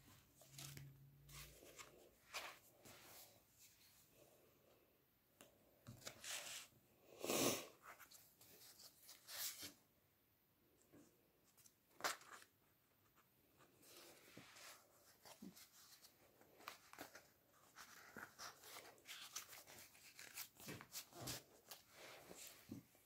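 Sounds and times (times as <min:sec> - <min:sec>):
paper rustling: 0:13.9 - 0:22.9.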